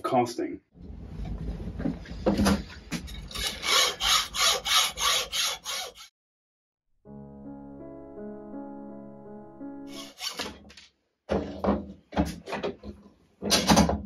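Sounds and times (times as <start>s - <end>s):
hacksaw cutting metal: 3.3s - 6.1s, 9.9s - 10.5s
music: 7.0s - 10.2s.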